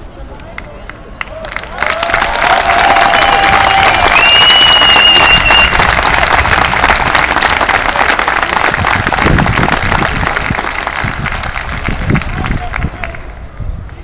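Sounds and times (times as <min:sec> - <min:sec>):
crowd applauding: 0:00.6 - 0:13.4
shrill whistle: 0:04.2 - 0:05.7.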